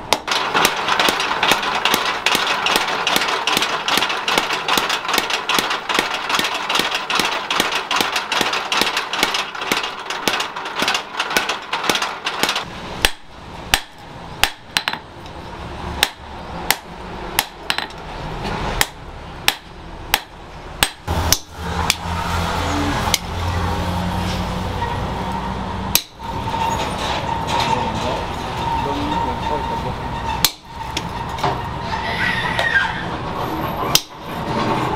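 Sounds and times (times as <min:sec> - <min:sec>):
hand hammer striking hot metal: 0:00.0 - 0:15.1, 0:16.0 - 0:18.0, 0:18.8 - 0:22.1, 0:25.9 - 0:26.3, 0:30.4 - 0:30.8, 0:33.9 - 0:34.2
power hammer pounding steel: 0:00.0 - 0:15.1, 0:16.0 - 0:18.0, 0:18.8 - 0:23.5, 0:25.9 - 0:26.6, 0:30.4 - 0:31.5, 0:33.9 - 0:34.9.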